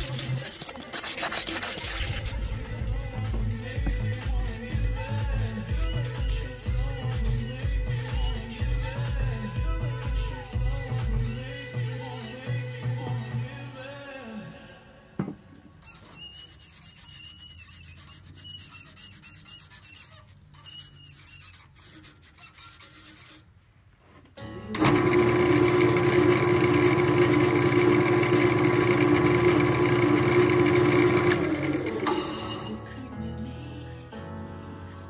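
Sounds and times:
workshop machine humming and whining: 0:24.7 - 0:32.9.

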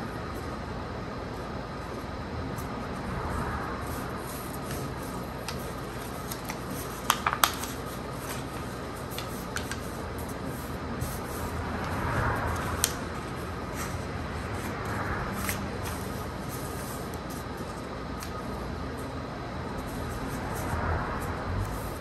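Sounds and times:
paper crackles: 0:03.9 - 0:18.5
paper rustling: 0:04.2 - 0:18.5.

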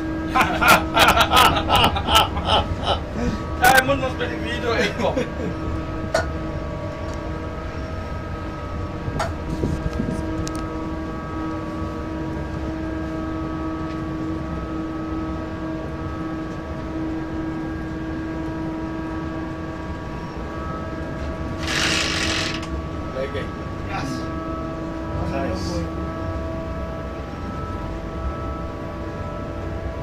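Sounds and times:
locomotive cab rumble: 0:00.0 - 0:12.6
steady multi-tone whine: 0:00.0 - 0:30.0.

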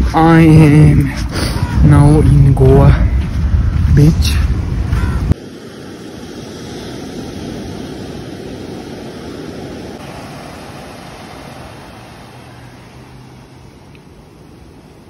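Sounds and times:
surf washing up sand: 0:03.0 - 0:15.0.

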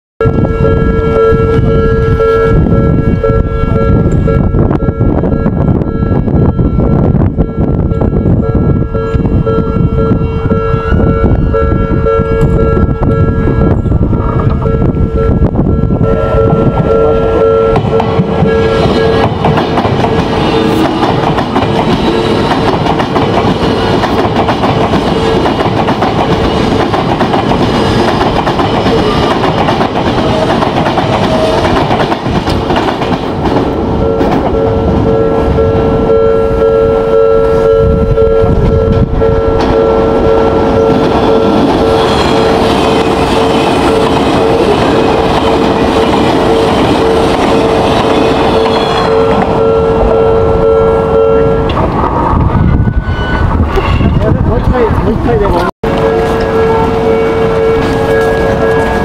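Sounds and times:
train wheels clattering: 0:17.8 - 0:34.6.

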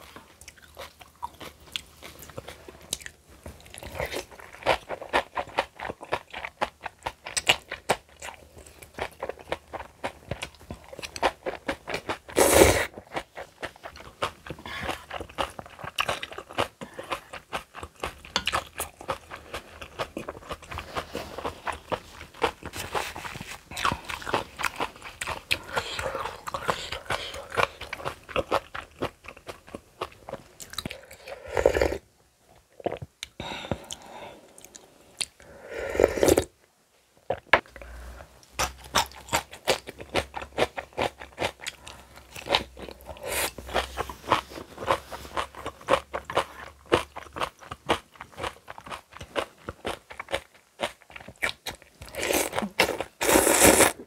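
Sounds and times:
crunching and chewing food: 0:00.0 - 0:31.5, 0:37.2 - 0:54.0.

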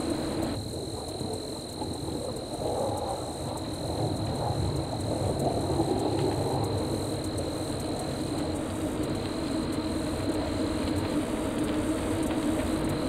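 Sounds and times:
wind buffeting microphone: 0:00.0 - 0:13.0
wind rumble: 0:00.0 - 0:13.0.

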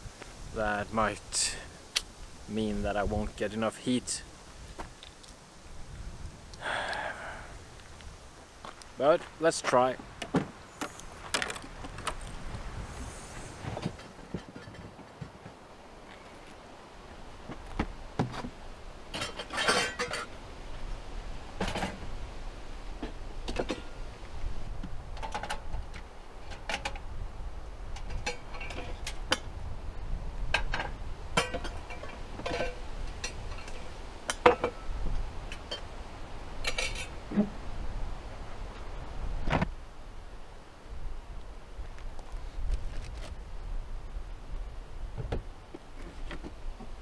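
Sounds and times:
wind rumble on microphone: 0:05.6 - 0:08.4, 0:11.1 - 0:15.4, 0:20.0 - 0:47.0
metal pots and utensils clinking: 0:19.1 - 0:20.3, 0:31.4 - 0:34.8, 0:35.6 - 0:35.9, 0:36.6 - 0:37.2.

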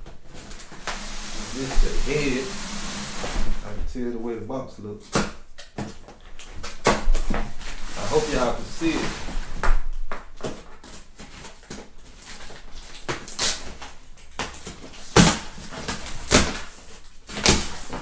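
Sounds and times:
cardboard ripping and rustling: 0:05.8 - 0:09.8, 0:10.4 - 0:18.0
tape peeled from cardboard box: 0:06.6 - 0:09.7, 0:10.4 - 0:13.9.

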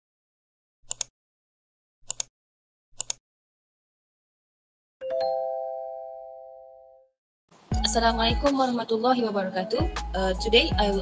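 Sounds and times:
sharp double clicks: 0:02.0 - 0:02.3.

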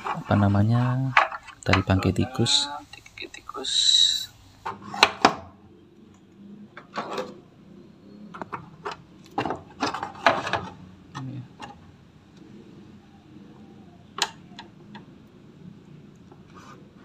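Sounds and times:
scraping and rustling handling noises: 0:00.0 - 0:03.2.

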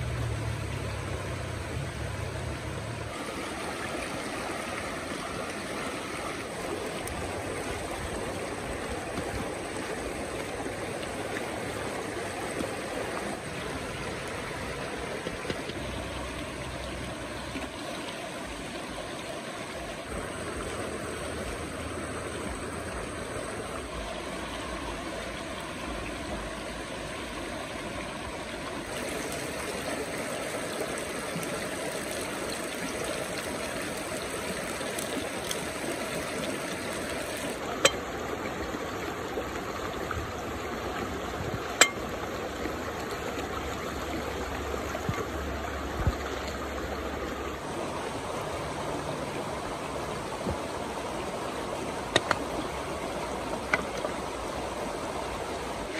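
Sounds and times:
stream rushing over rocks: 0:00.0 - 0:55.9.

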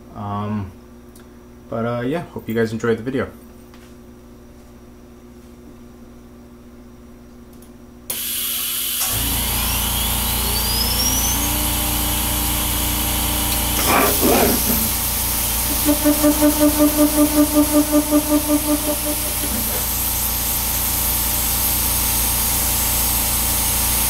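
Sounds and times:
router spindle whine: 0:08.1 - 0:24.0
loud hiss: 0:13.4 - 0:24.0
low steady hum: 0:15.6 - 0:20.1.

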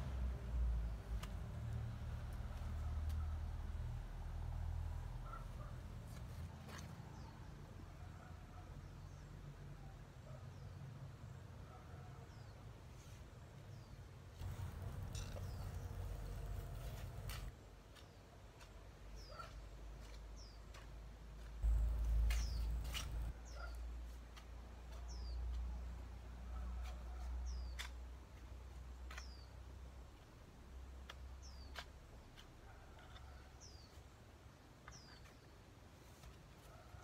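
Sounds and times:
hoe chopping into soil: 0:21.6 - 0:23.3
bird chirping: 0:21.6 - 0:23.8.

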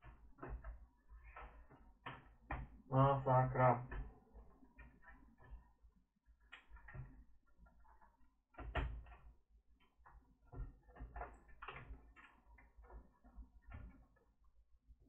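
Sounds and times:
plastic laptop case clicking and scraping: 0:09.8 - 0:14.1.

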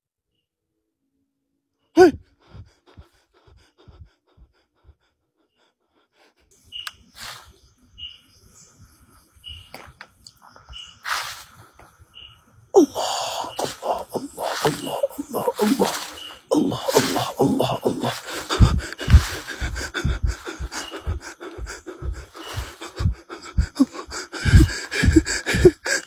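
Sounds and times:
short voice-like cry: 0:02.0 - 0:02.2, 0:12.8 - 0:18.7
soft rustling: 0:18.0 - 0:20.7.

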